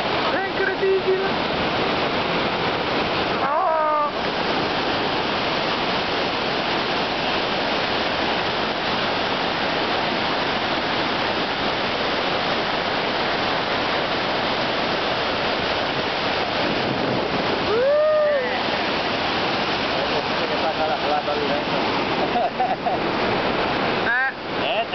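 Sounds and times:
waterfall rushing: 0.0 - 24.9.

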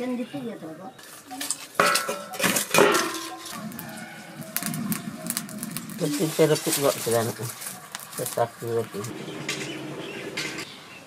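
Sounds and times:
metal plates and bowls clattering: 1.8 - 3.8.

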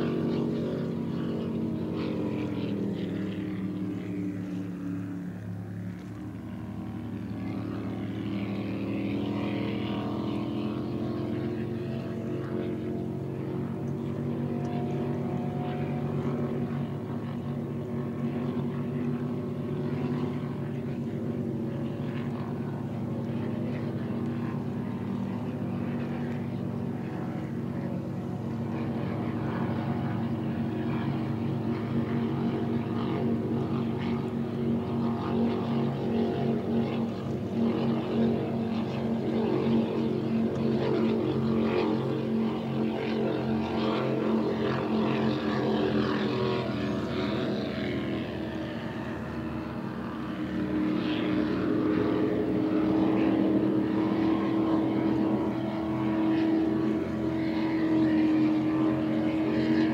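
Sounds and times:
powerboat engines droning: 0.0 - 59.9
racing boat passing: 0.0 - 59.9.

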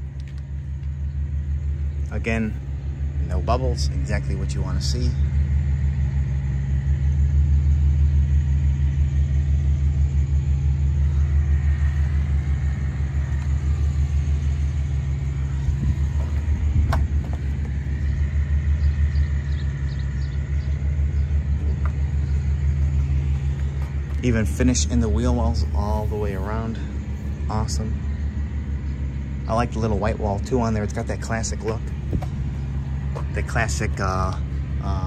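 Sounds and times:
low pulsing rumble: 0.0 - 35.0.

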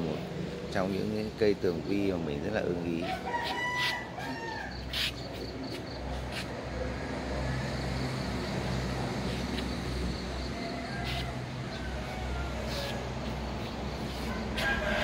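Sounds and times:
rooster crowing: 3.0 - 4.9, 10.4 - 15.0.

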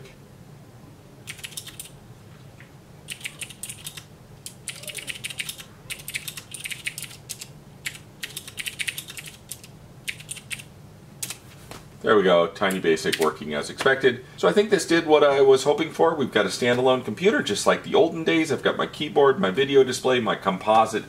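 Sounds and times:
keyboard keys clicking: 1.3 - 1.9, 3.1 - 11.4.

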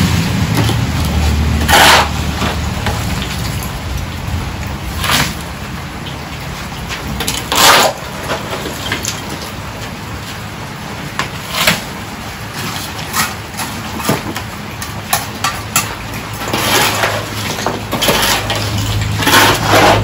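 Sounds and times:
shovel scraping concrete rubble: 0.0 - 3.8, 4.9 - 5.5, 6.5 - 9.6, 11.2 - 11.9, 12.5 - 20.0.

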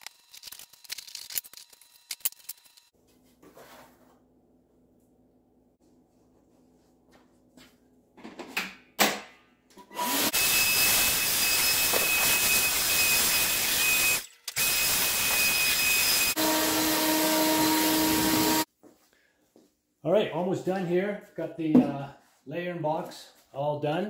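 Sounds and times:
vacuum cleaner whine: 9.9 - 18.7.

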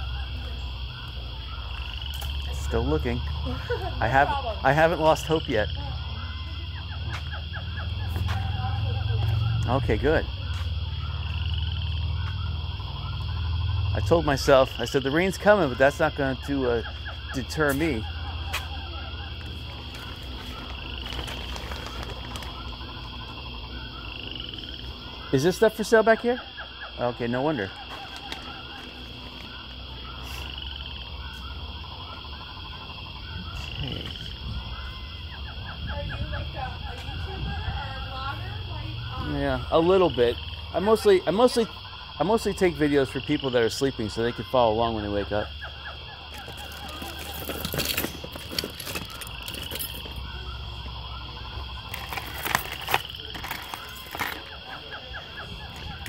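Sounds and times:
animal croaks: 0.0 - 56.0
chirping trills: 0.0 - 56.0
metal bracelets clinking: 46.3 - 50.2, 51.9 - 54.6.

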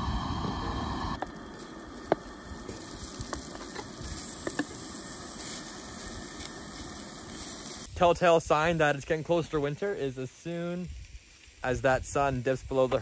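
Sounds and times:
sausage sizzling in skillet: 0.0 - 8.0
crackling pops: 0.2 - 7.9.

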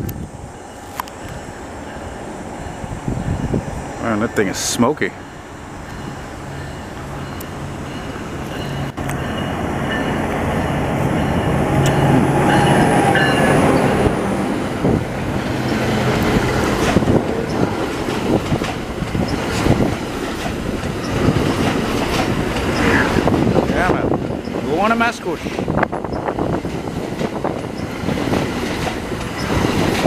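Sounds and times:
diesel locomotive passing: 0.0 - 30.0
train wheels clacking on rail joints: 14.8 - 30.0.

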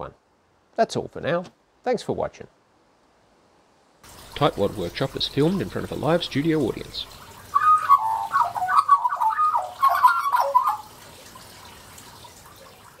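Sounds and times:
magpie warbling: 6.8 - 10.9.

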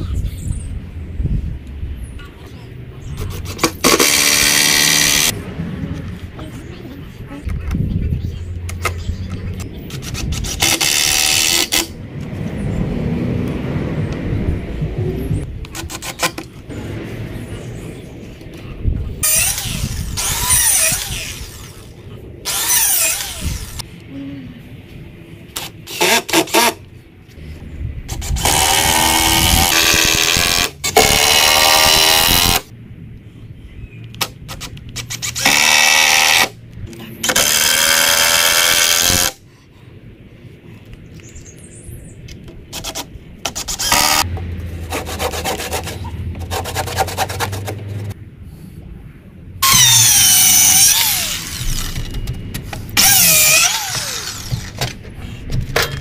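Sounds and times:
power drill into timber: 22.5 - 23.8, 28.2 - 32.6, 35.2 - 36.5, 43.6 - 44.2, 49.6 - 52.2, 53.0 - 54.8
handling knocks and clicks: 51.9 - 53.0.

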